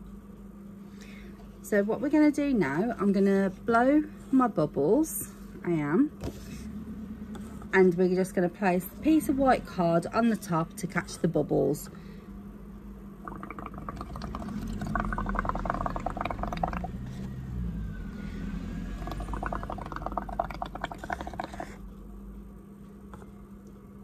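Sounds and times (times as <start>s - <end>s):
bubbling through a straw: 13.2s - 17.3s, 18.9s - 21.8s.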